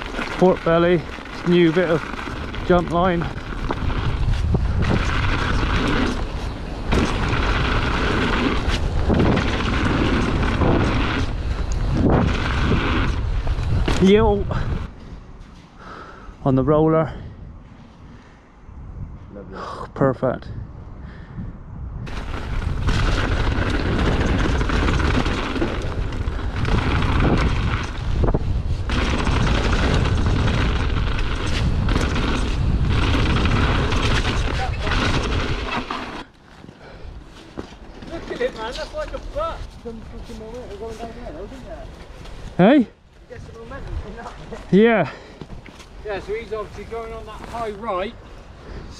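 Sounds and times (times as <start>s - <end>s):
bike knocks and rattles: 0.0s - 14.8s, 22.1s - 36.7s
bike tyres rolling on gravel: 0.0s - 16.3s, 22.0s - 48.9s
wind rushing over microphone: 0.0s - 48.9s.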